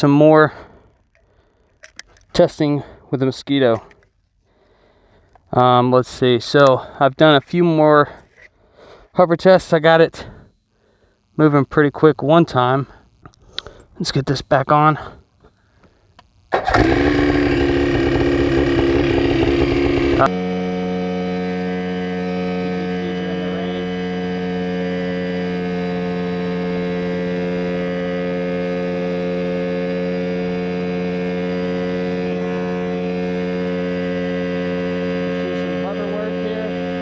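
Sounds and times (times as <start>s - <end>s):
helicopter engine running: 16.6s - 37.0s.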